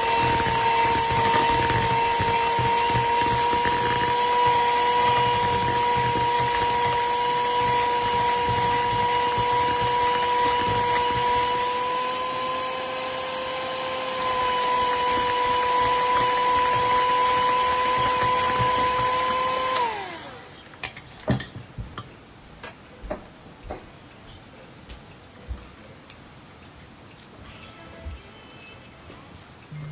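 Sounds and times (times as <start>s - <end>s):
electric hand mixer running: 0.0s - 20.5s.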